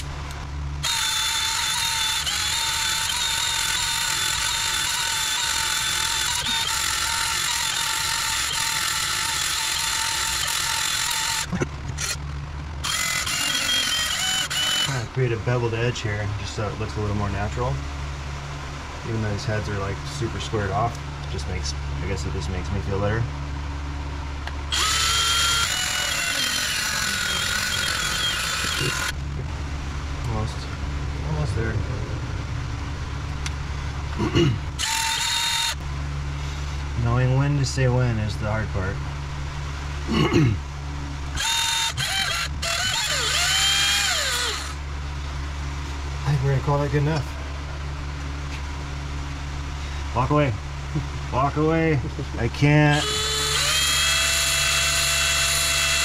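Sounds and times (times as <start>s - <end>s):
belt sander whining: 0.0s - 15.7s, 24.3s - 29.5s, 34.7s - 36.9s, 40.9s - 51.3s, 51.9s - 56.0s.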